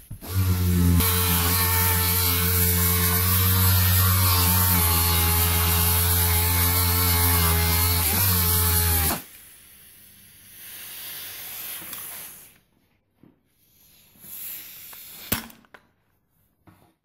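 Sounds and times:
electric polisher on steel: 0.1 - 9.3.

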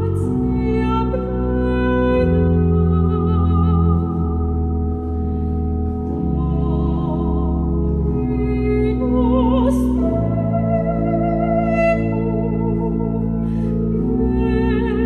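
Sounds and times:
pipe organ chords: 0.0 - 15.0.

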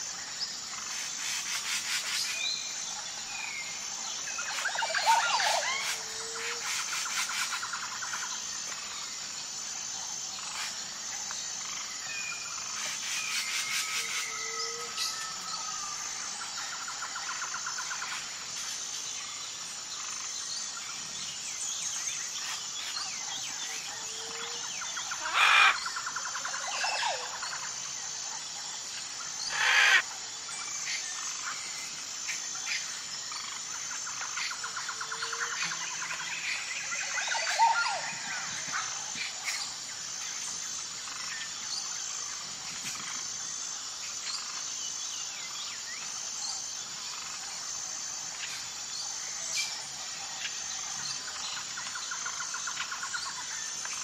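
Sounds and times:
insect chorus: 0.0 - 54.0
birds calling and chirping: 0.7 - 9.0, 19.9 - 28.2, 29.0 - 43.2
loud harsh bird calls: 25.2 - 25.8, 29.5 - 30.0.

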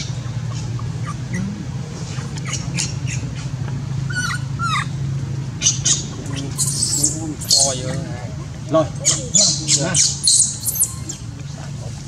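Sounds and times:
baby monkey squealing: 0.0 - 5.0, 5.6 - 8.1, 9.0 - 11.3
steady low hum: 0.0 - 12.0.

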